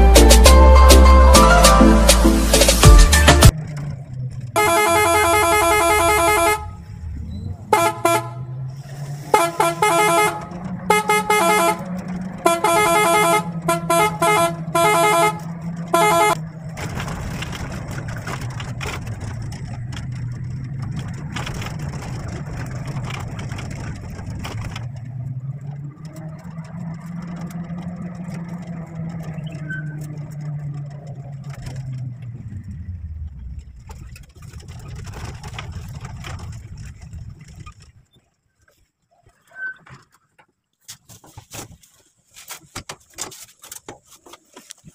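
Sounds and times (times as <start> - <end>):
vehicle engine: 0.0 - 40.5
road noise: 0.0 - 44.9
vehicle horn honking: 4.6 - 6.8, 7.6 - 8.6, 9.2 - 16.5.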